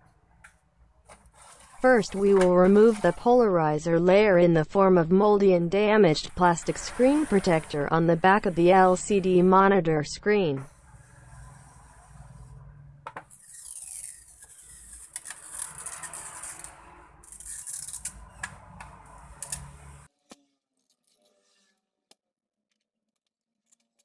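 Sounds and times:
plastic film peeling crackle: 17.4 - 18.1.

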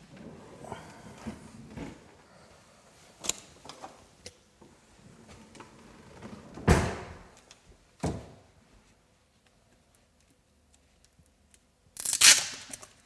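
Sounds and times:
cabinet clicks and knocks: 6.6 - 7.3
cabinet door banging shut: 6.6 - 7.3.

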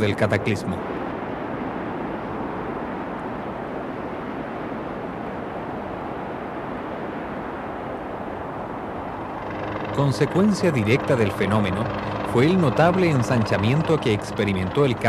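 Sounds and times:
helicopter engine and rotor: 9.2 - 15.0.

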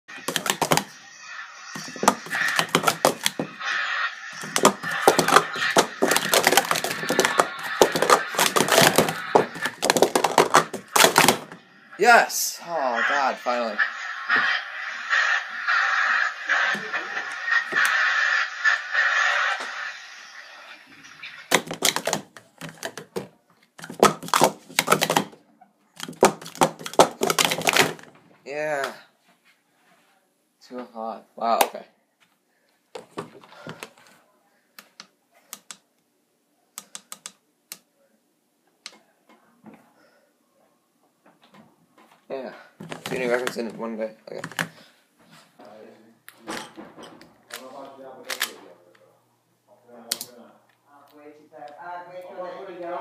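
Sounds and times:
plastic cups clacking: 0.1 - 1.0, 1.7 - 3.7, 4.3 - 11.6, 21.2 - 25.4, 26.0 - 28.1, 42.8 - 44.8.

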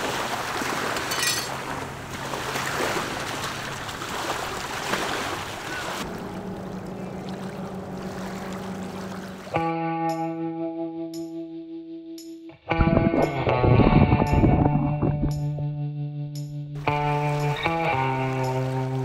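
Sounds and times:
ocean surf: 0.0 - 9.6
low steady hum: 6.0 - 9.5
wind noise: 12.7 - 15.6.

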